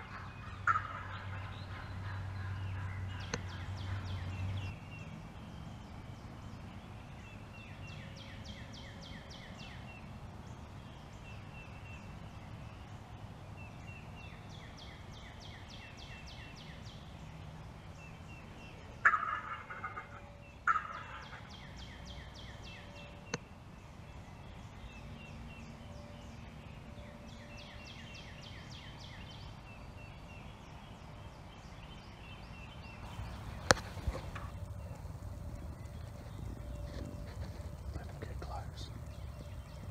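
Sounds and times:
turkey gobbling: 0:00.0 - 0:02.6, 0:19.0 - 0:21.5
turkey hen clucking: 0:00.0 - 0:04.0, 0:19.0 - 0:21.5.

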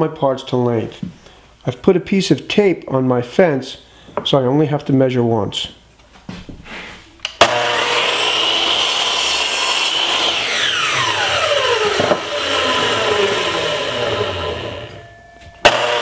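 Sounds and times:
saw cutting wood board: 0:07.4 - 0:15.0, 0:15.6 - 0:16.0
miter saw motor whine: 0:07.4 - 0:16.0.

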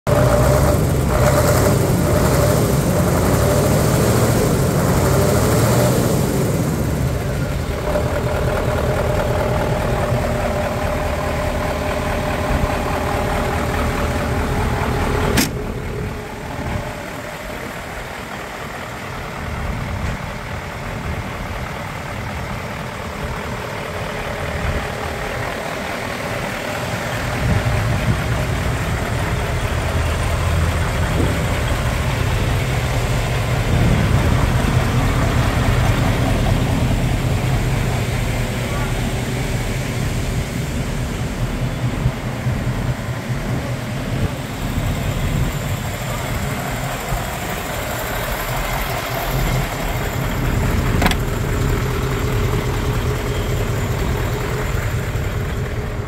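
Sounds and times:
diesel engine idling: 0:00.1 - 0:56.0
sharp click: 0:15.4 - 0:15.6.

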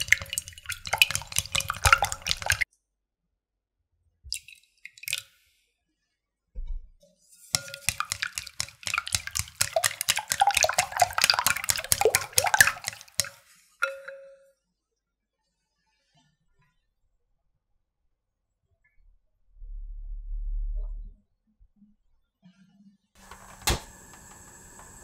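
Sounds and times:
water pouring: 0:00.0 - 0:02.6, 0:04.3 - 0:05.3, 0:07.6 - 0:14.2
egg sloshing: 0:00.0 - 0:02.7, 0:07.6 - 0:14.1
chopsticks clicking against glass bowl: 0:07.6 - 0:13.4.

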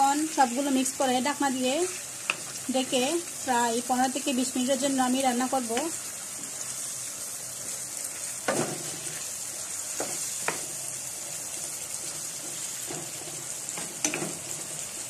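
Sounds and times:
chicken sizzling in a frying pan: 0:00.0 - 0:15.0
spatula knocking against pan: 0:10.0 - 0:10.7.

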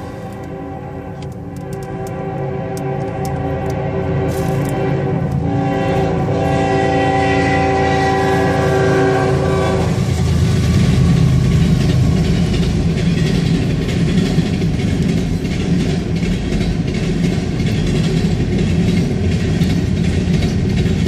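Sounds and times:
locomotive air horn: 0:00.0 - 0:10.6
passing train rumbling and rattling: 0:00.0 - 0:21.0.

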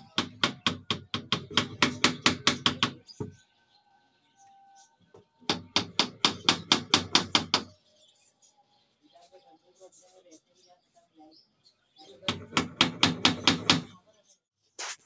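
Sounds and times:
hammer striking wooden frame: 0:00.0 - 0:03.4, 0:05.4 - 0:07.7, 0:12.2 - 0:14.0.

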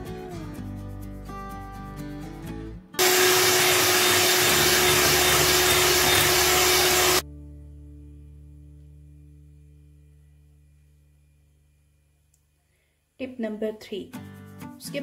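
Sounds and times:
electric hand mixer beating: 0:03.0 - 0:07.2.

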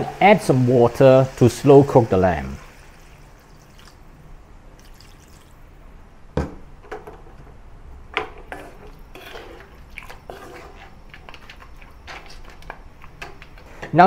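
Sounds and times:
spatula knocking and scraping pan: 0:08.2 - 0:14.0
wet curry stirring: 0:08.5 - 0:13.9.

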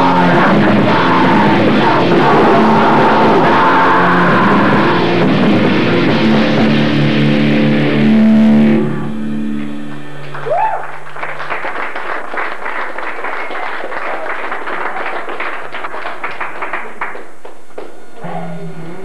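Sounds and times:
band playing electric guitars: 0:00.0 - 0:10.4
audience clapping: 0:09.9 - 0:18.0
person whooping: 0:10.4 - 0:11.0.

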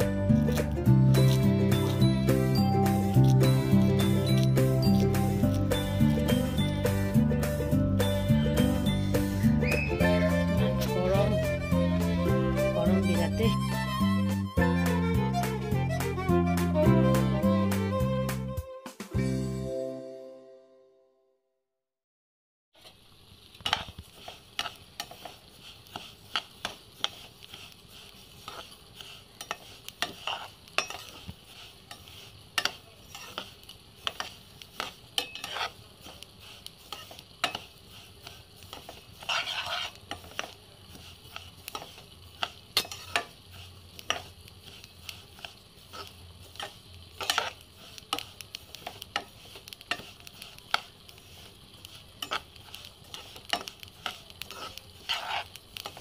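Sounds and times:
spatula scraping seeds in pan: 0:00.0 - 0:17.9, 0:22.8 - 0:56.0
spatula tapping pan: 0:23.6 - 0:56.0.

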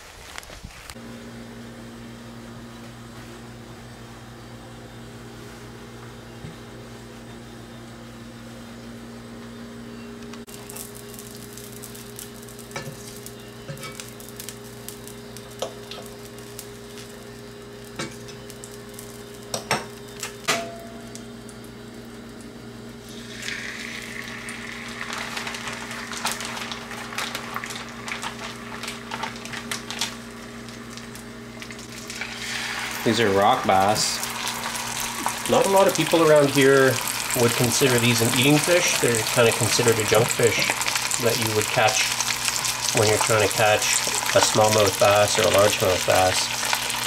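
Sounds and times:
butter sizzling in a skillet: 0:10.5 - 0:20.2, 0:23.0 - 0:47.0
fish sizzling in butter: 0:10.5 - 0:20.2, 0:23.0 - 0:47.0.

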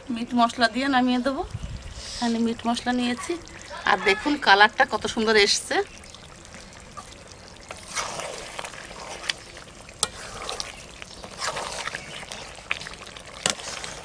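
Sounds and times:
spatula stirring thick curry: 0:06.6 - 0:14.0.

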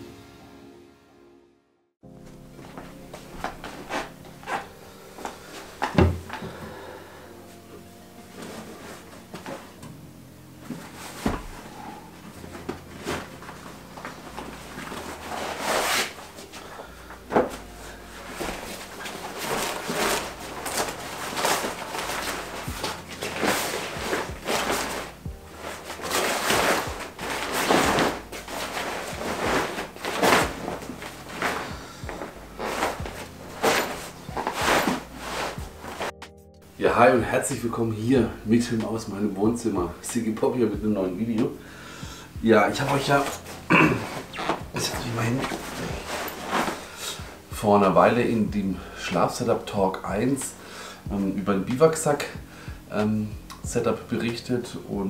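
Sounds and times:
fabric rustling and flapping: 0:02.4 - 0:06.9, 0:08.2 - 0:09.8, 0:10.6 - 0:36.3, 0:42.5 - 0:48.5
cabinet door opening: 0:05.8 - 0:06.4.

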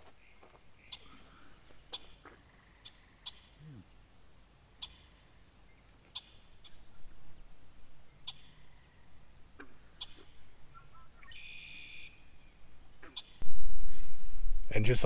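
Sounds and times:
sharp bird chirps: 0:08.1 - 0:13.4.

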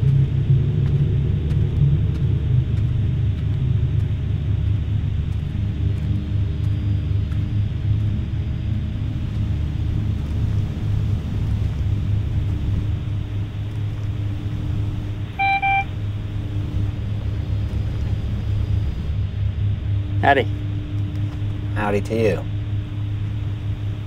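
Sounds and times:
low rumble with hiss: 0:00.0 - 0:24.0
short electronic beeps: 0:15.4 - 0:15.9.

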